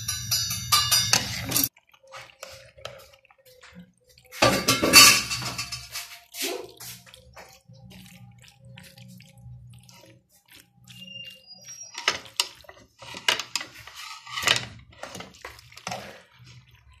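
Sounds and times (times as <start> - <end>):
spoon scraping and clinking pan: 0.0 - 1.7, 4.3 - 6.4, 10.9 - 16.2
metal spoon stirring in pan: 0.0 - 17.0.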